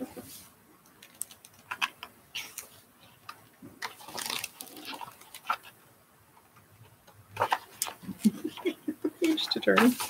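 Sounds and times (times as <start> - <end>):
paper rustling: 1.0 - 5.8, 7.4 - 10.0.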